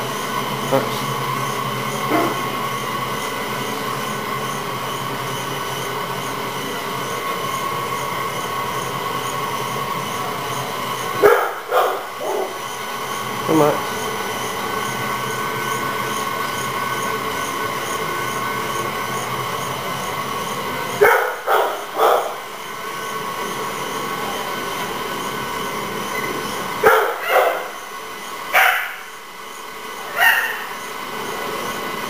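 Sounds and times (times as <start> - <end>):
treadmill belt rumble: 0.0 - 32.0
treadmill motor whine: 0.0 - 32.0
dog barking: 2.1 - 2.5, 11.2 - 12.6, 21.0 - 22.4, 26.8 - 27.7, 28.5 - 29.1, 30.1 - 30.8.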